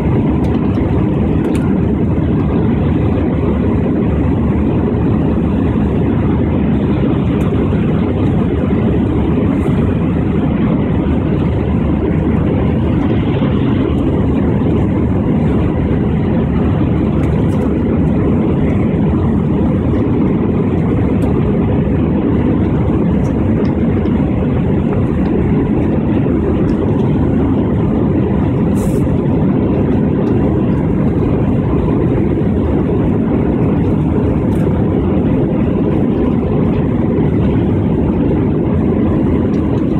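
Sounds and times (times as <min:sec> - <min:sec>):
jet engines rumbling: 0:00.0 - 0:39.9
rushing air: 0:00.0 - 0:39.9.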